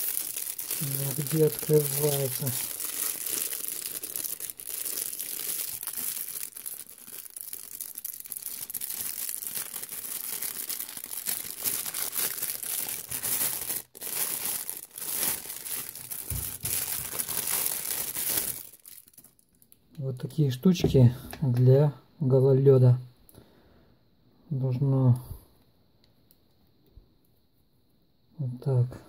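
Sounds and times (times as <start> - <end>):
plastic bag crinkling: 0.0 - 19.8.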